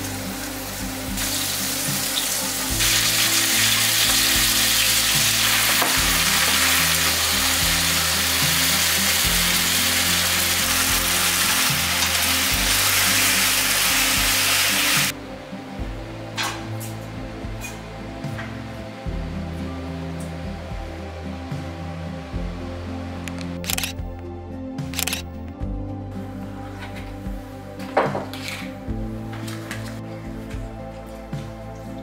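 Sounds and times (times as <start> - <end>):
soft background music: 0.0 - 32.0
food sizzling in a frying pan: 0.4 - 15.1.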